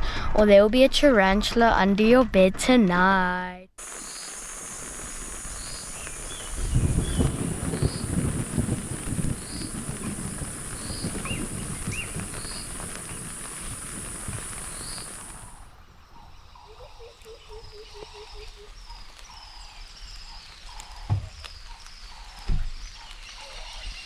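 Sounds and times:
high insect drone: 3.8s - 15.6s
insect chirps: 3.8s - 24.0s
rain pattering: 3.8s - 24.0s.

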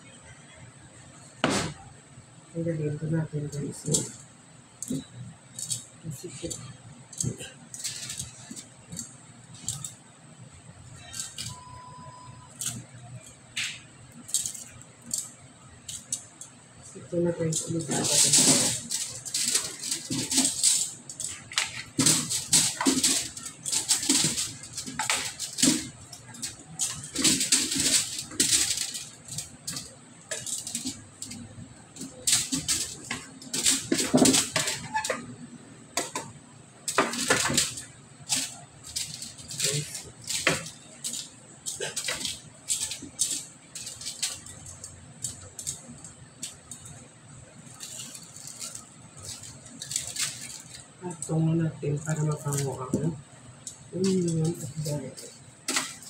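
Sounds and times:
vegetables dropping onto crinkling foil: 17.3s - 35.2s, 36.0s - 51.2s, 52.0s - 56.0s.

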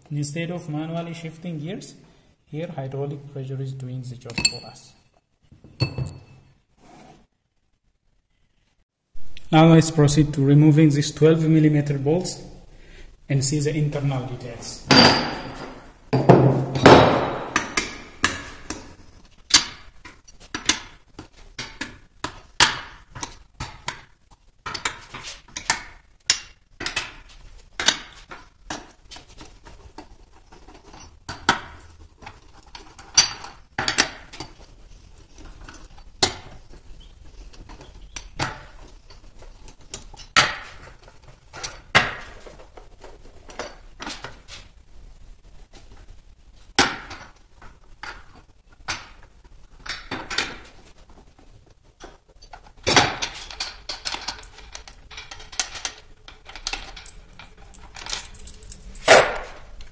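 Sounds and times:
wrench clinking on bolts: 53.2s - 59.6s.

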